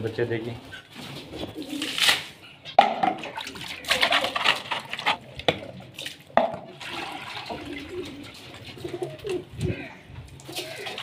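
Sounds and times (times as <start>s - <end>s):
water sloshing in plastic bowl: 1.9s - 9.5s.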